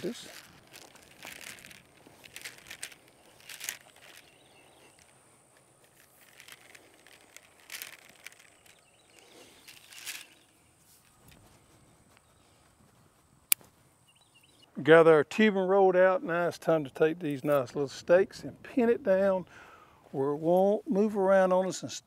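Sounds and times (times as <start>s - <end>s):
tubing rustling and scuffing: 0.0s - 14.6s
faint outdoor ambience: 0.0s - 22.0s.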